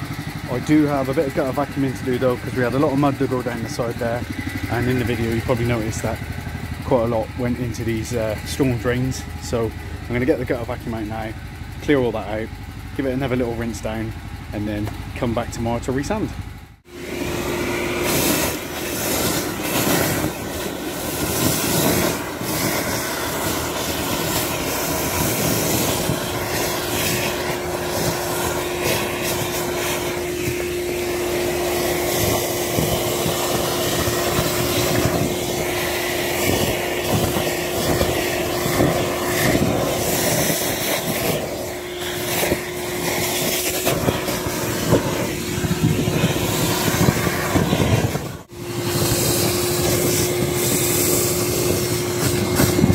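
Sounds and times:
vacuum motor whine: 0.0s - 13.8s, 14.8s - 52.9s
debris crackling up hose: 17.9s - 52.9s.

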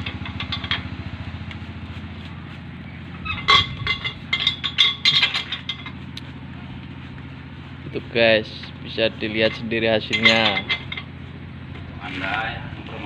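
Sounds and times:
engine running: 0.0s - 13.0s
metallic clinks of tools: 9.4s - 11.1s.

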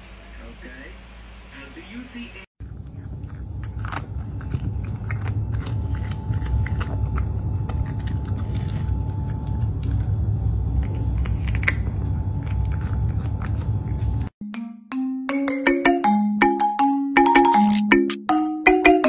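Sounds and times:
cat crunching cucumber: 2.6s - 14.3s
steady low rumble: 2.6s - 14.3s.

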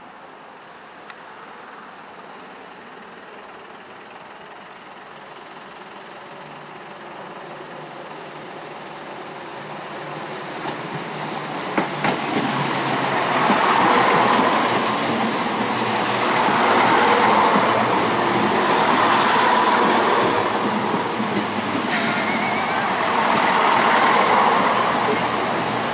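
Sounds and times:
diesel train running: 2.8s - 25.9s
high falling squeal: 15.6s - 20.8s, 21.8s - 25.4s.

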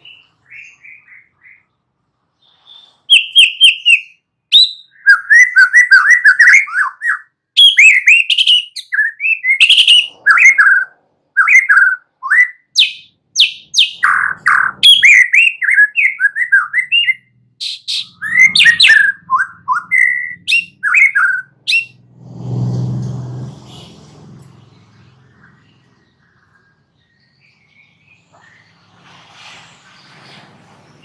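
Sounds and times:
bird singing whistled phrases: 2.4s - 22.0s.

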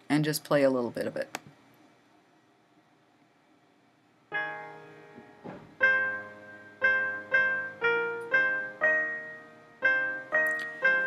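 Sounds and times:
piano chords: 4.3s - 11.0s.

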